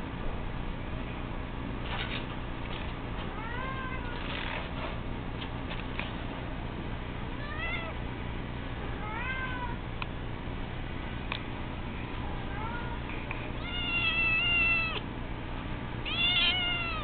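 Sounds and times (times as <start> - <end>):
kitten meowing: 13.6 - 15.0, 16.0 - 17.0.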